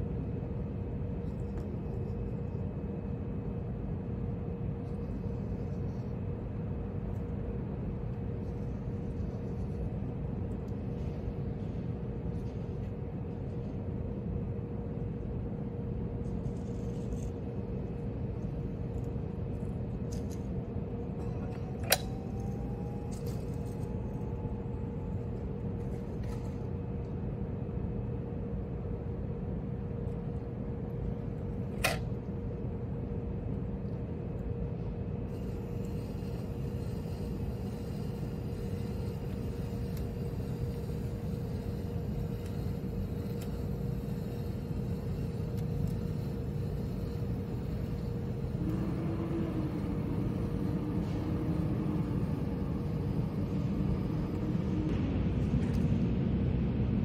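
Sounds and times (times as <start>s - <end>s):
constant hum: 0.0s - 57.0s
low rumble: 47.4s - 57.0s.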